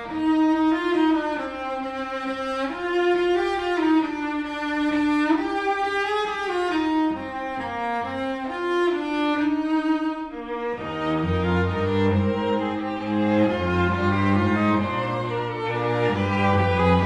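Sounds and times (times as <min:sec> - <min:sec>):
string trio playing sustained chords: 0:07.0 - 0:17.0.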